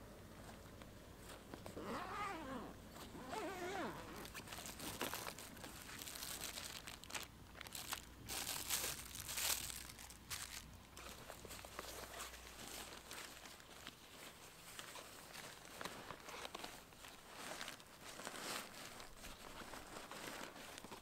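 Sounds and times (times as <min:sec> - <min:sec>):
fabric rustling: 0:00.3 - 0:21.0
plastic wrapping crinkling: 0:00.4 - 0:21.0
zipper pulled open: 0:01.6 - 0:05.4.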